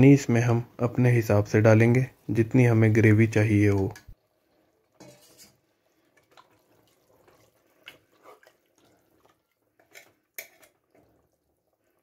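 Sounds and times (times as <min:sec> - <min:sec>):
wet sloshing of gravy: 0:04.2 - 0:12.0
ladle scraping and clinking pot: 0:04.9 - 0:11.2.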